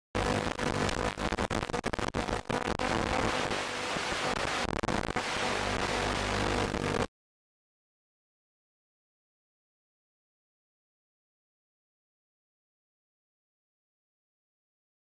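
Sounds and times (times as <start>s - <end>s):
radio static hiss with crackling: 0.0s - 7.1s
faint hum: 0.2s - 7.1s.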